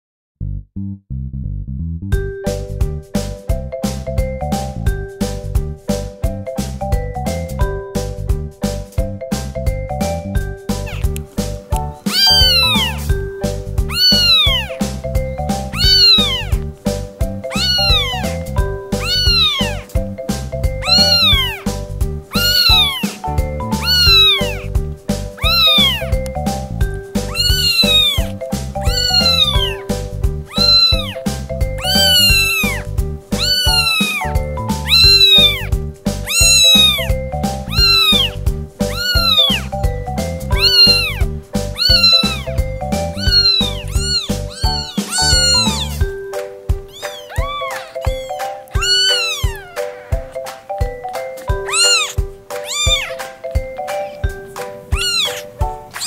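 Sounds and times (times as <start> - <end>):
background music: 2.2 - 56.0
kitten mewing: 10.8 - 13.2, 13.8 - 14.9, 15.5 - 16.7, 17.4 - 20.0, 20.8 - 24.7, 25.3 - 26.3, 27.2 - 39.8, 40.5 - 46.2, 46.8 - 50.4, 51.4 - 53.3, 53.9 - 56.0.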